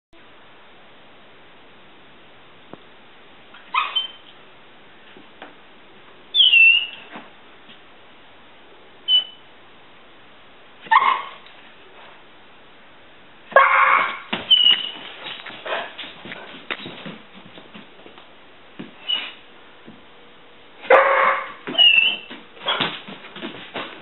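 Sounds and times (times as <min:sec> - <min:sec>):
dog whining squeaks: 0:03.6 - 0:04.3, 0:06.3 - 0:07.1, 0:09.1 - 0:09.4, 0:10.9 - 0:11.4, 0:13.6 - 0:15.4, 0:19.0 - 0:19.4, 0:20.9 - 0:22.9.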